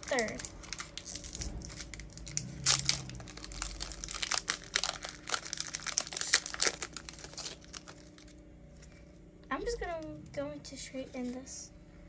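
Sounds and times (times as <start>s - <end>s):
foil wrapper crinkling as torn open: 0.0s - 8.4s.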